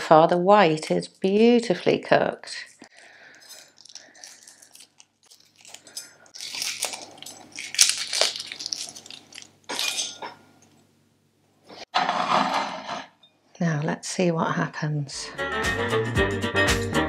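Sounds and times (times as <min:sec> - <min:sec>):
eggshell crackling: 0:02.7 - 0:09.9
shell bits clinking on plate: 0:05.9 - 0:10.4.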